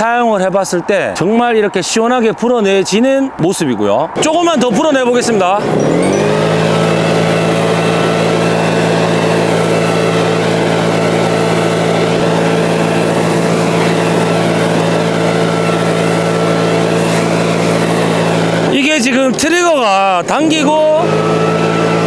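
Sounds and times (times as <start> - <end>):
leaf blower engine running: 5.2 - 22.0
rush of air from blower: 5.6 - 22.0.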